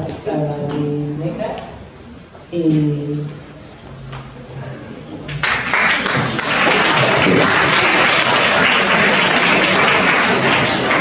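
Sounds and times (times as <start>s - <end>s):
audience applauding: 5.3s - 11.0s.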